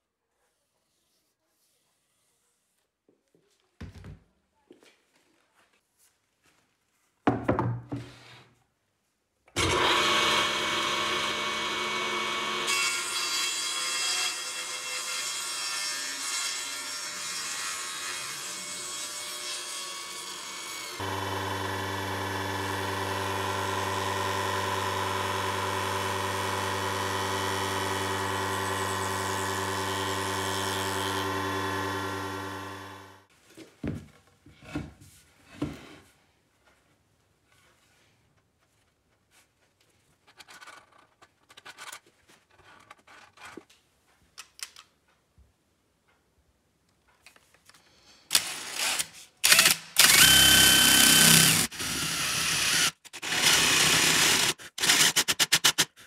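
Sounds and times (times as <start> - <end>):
knock: 7.3 - 8.1
power tool cutting wood: 9.6 - 33.3, 48.3 - 55.8.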